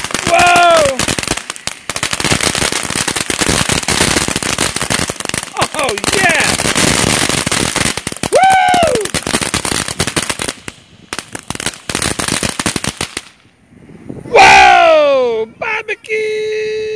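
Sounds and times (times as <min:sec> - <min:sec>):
firework fountain hissing and crackling: 0:00.0 - 0:13.6
person exclaiming: 0:00.2 - 0:01.0, 0:05.5 - 0:06.6, 0:08.3 - 0:09.2, 0:14.3 - 0:16.9.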